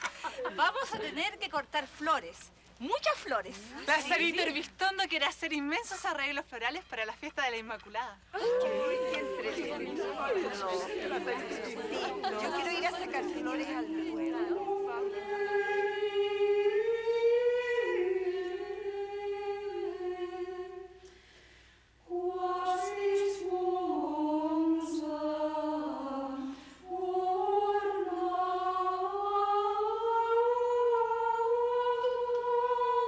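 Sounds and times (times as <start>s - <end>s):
choir chanting in unison: 8.4s - 21.0s, 22.1s - 33.0s.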